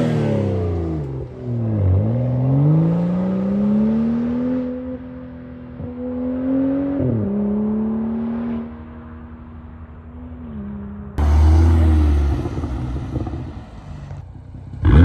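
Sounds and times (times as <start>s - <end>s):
car engine accelerating: 10.4s - 15.0s.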